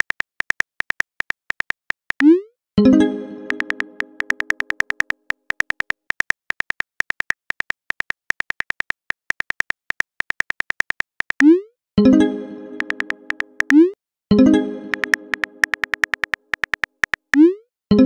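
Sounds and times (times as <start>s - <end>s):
phone keyboard clicks: 0.0s - 2.3s, 3.4s - 11.5s, 12.8s - 13.8s, 14.9s - 17.4s.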